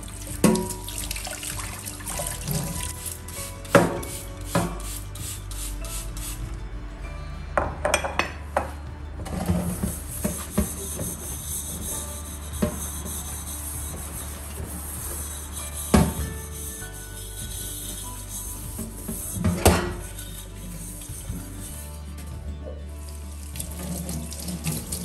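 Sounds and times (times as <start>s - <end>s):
steel wool scrubbing pot: 0.0s - 4.7s, 9.3s - 22.2s, 23.0s - 25.0s
pot knocking against sink: 7.6s - 8.7s.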